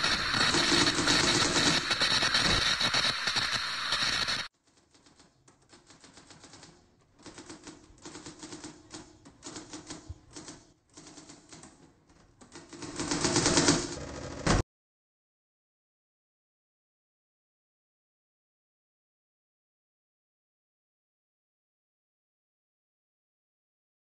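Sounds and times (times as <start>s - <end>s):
loud dense noise: 0.0s - 4.5s
rapid clicking: 0.0s - 14.6s.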